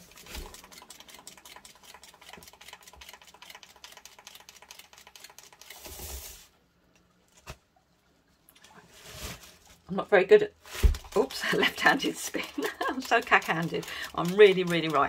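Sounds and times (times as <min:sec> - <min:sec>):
turntable fast ticking: 0:11.1 - 0:15.0.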